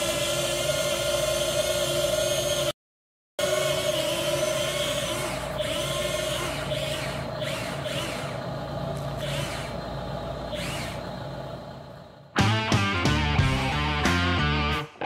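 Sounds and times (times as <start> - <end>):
toy excavator motor whine: 0.0 - 2.8, 3.4 - 11.2.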